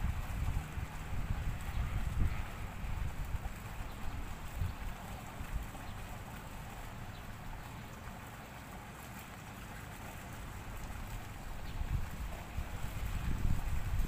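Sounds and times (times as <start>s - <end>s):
wind rumble on microphone: 0.0s - 6.2s, 10.9s - 14.0s
soft outdoor hiss: 0.0s - 14.0s.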